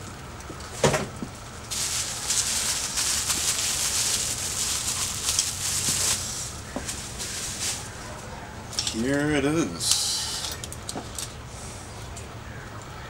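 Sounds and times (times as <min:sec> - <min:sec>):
bubble wrap crinkling: 0:01.4 - 0:08.2.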